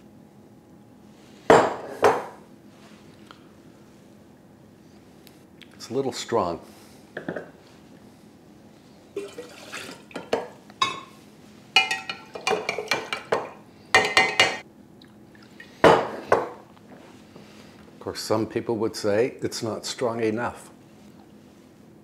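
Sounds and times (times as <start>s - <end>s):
liquid sloshing: 9.2s - 10.5s
spoon clinking against glass: 11.8s - 13.1s.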